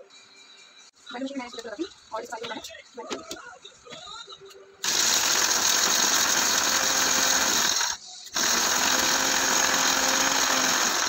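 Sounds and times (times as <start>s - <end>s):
electric spice grinder motor: 4.8s - 11.0s.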